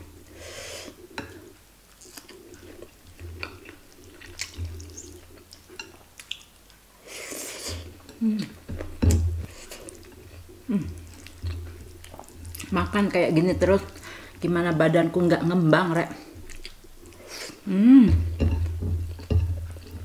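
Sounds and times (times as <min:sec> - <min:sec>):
wet chewing and mouth smacks: 0:01.9 - 0:06.8, 0:07.8 - 0:12.8, 0:16.4 - 0:17.6
person humming: 0:08.2 - 0:08.6, 0:10.6 - 0:11.0, 0:17.6 - 0:18.5.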